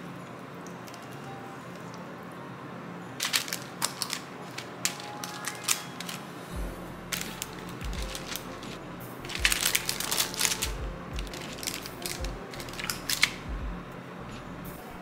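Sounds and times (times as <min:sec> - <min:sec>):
background music: 0:00.0 - 0:15.0
wax paper crinkling: 0:03.2 - 0:06.3, 0:07.1 - 0:13.4.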